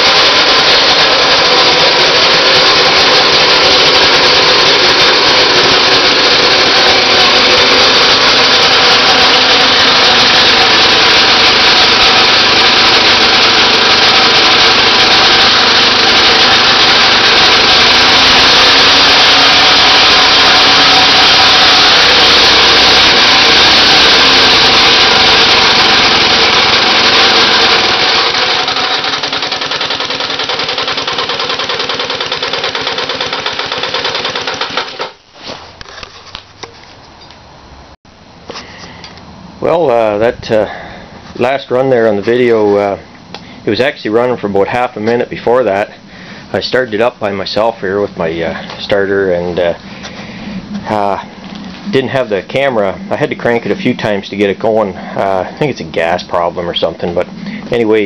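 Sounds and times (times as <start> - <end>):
engine running rough: 0.0 - 58.0.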